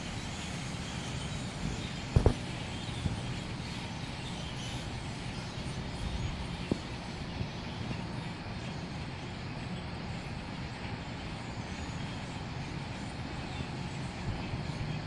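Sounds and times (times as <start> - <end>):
outdoor background rumble: 0.0 - 15.0
light knock: 2.2 - 2.4.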